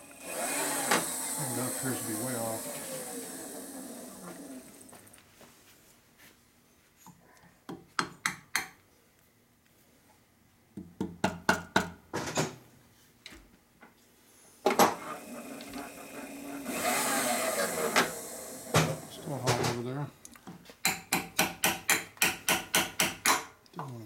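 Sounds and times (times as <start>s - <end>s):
mill table scraping whir: 0.0s - 5.2s, 14.8s - 19.8s.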